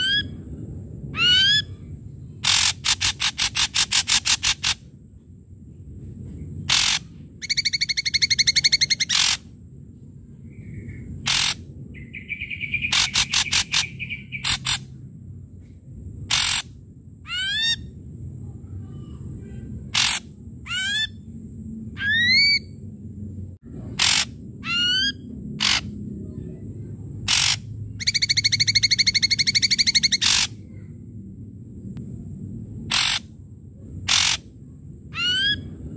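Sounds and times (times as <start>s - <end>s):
bird singing varied song: 6.3s - 9.5s, 10.2s - 14.9s, 23.8s - 30.9s.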